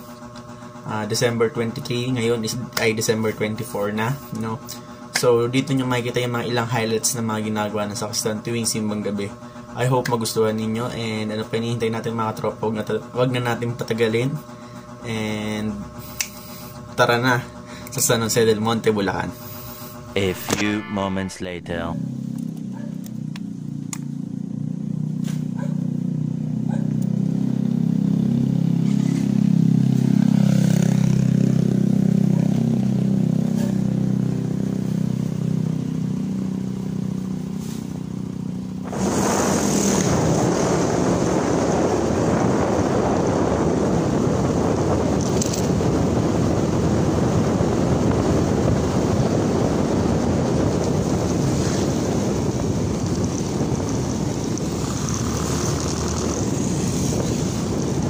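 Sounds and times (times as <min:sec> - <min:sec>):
motorcycle engine humming: 0:19.2 - 0:58.0
wind and road rush: 0:38.7 - 0:58.0.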